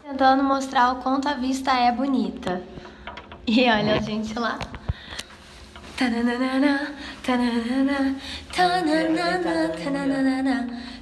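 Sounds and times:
woman singing slow melody: 0:06.0 - 0:11.0
lower second vocal line: 0:08.6 - 0:10.8.

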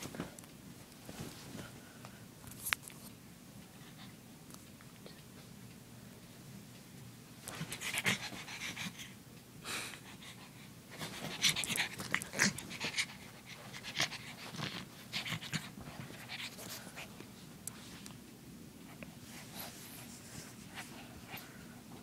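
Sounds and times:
puppy panting: 0:07.7 - 0:09.2, 0:10.0 - 0:17.2.

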